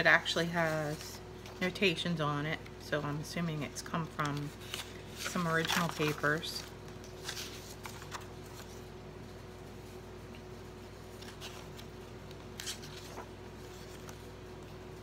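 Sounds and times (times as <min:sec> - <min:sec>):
faint hum: 0:00.0 - 0:15.0
paper rustling: 0:04.1 - 0:08.9, 0:10.9 - 0:14.9.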